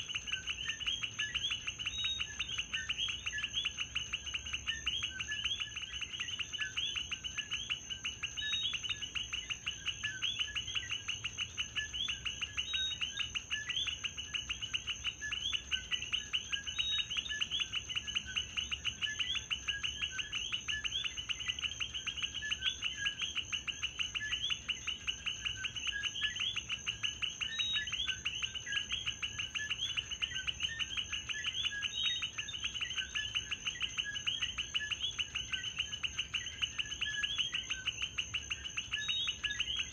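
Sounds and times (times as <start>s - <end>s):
frogs chirping: 0.0s - 39.9s.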